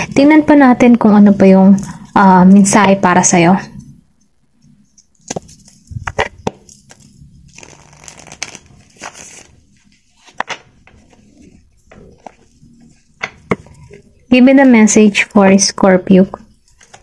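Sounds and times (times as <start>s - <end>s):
cards sliding and rustling: 5.2s - 12.6s.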